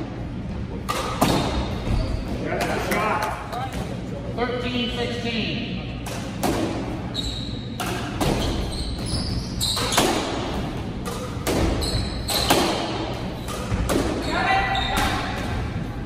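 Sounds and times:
squash ball knocks: 0:00.8 - 0:01.6, 0:09.8 - 0:14.2
shoe squeaks on wooden floor: 0:01.7 - 0:02.4, 0:07.1 - 0:10.3, 0:11.8 - 0:12.5.

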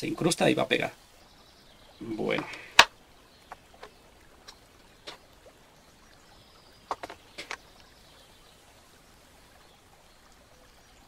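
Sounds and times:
light clicks of wooden pieces: 0:06.8 - 0:08.0.

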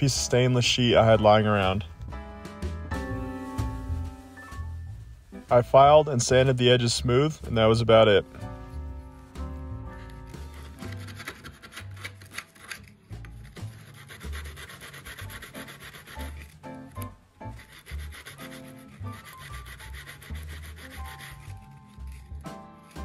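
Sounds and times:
background music with bass line: 0:00.0 - 0:12.3
sandpaper rubbing on steel: 0:10.0 - 0:16.5, 0:17.4 - 0:23.0.

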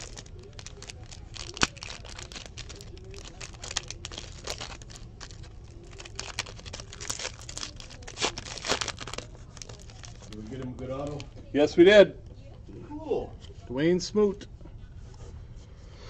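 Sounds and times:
plastic wrapper tearing and crinkling: 0:00.0 - 0:11.3.

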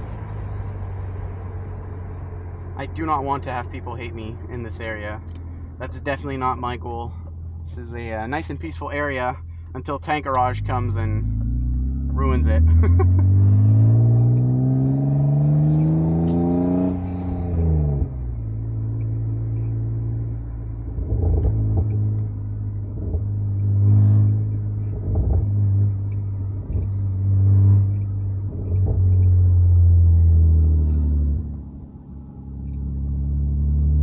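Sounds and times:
exhaust crackles: 0:00.0 - 0:34.0
car engine accelerating: 0:08.3 - 0:34.0.

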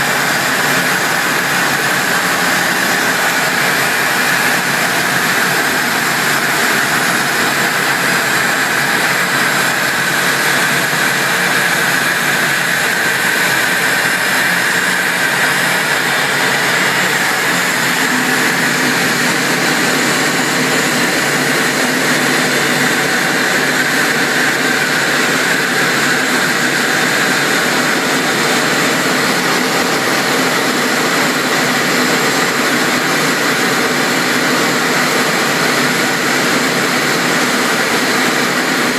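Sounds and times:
jet engine noise in cockpit: 0:00.0 - 0:38.9
deep hum: 0:12.8 - 0:24.8.

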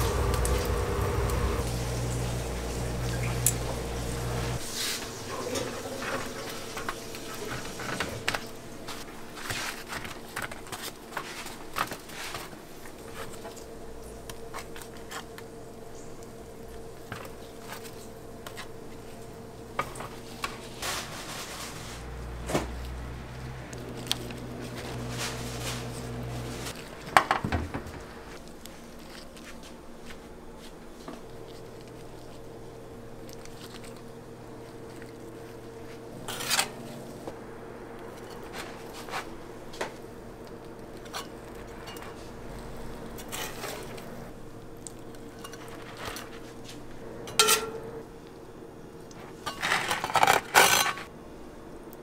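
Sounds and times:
hum of kitchen equipment: 0:00.0 - 0:52.0
utensils knocking on steel pans: 0:47.3 - 0:47.9.

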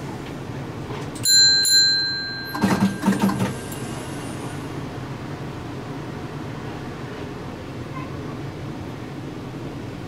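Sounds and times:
tram hum: 0:00.0 - 0:10.0
tram bell ding: 0:01.2 - 0:04.2.

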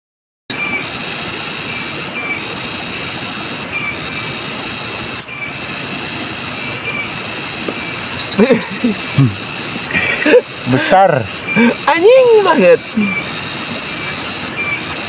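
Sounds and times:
insects droning: 0:00.5 - 0:15.0.

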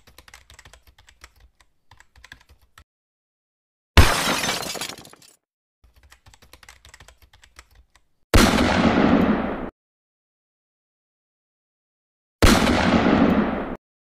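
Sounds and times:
light key clicks typing: 0:00.0 - 0:02.8, 0:05.9 - 0:08.1
glass shattering: 0:04.0 - 0:05.4.

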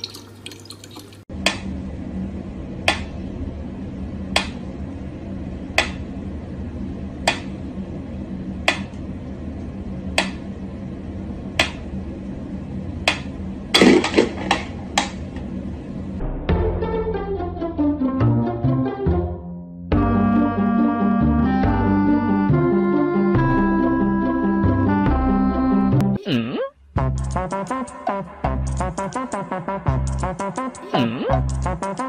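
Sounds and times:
steady low hum: 0:01.3 - 0:16.5, 0:26.8 - 0:32.0.

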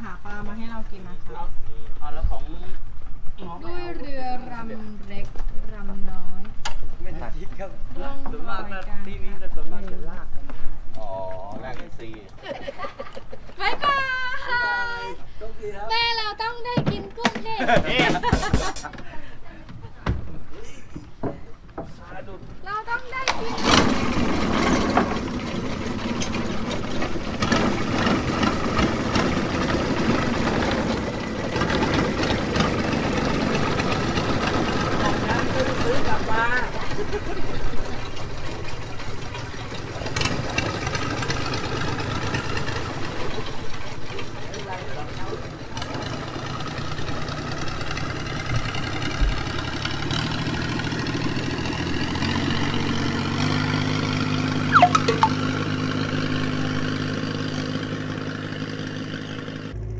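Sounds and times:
propeller churning water: 0:23.3 - 0:57.0
boat engine running: 0:23.5 - 0:59.1.

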